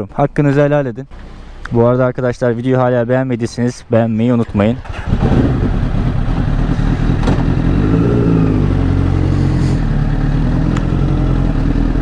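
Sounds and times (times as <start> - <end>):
motorcycle engine running: 4.8 - 12.0.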